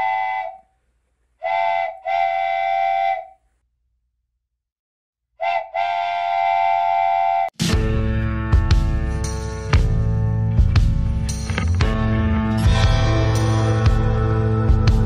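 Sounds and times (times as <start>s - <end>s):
model diesel locomotive horn blasts: 0.0s - 0.6s, 1.4s - 3.4s, 5.4s - 7.5s.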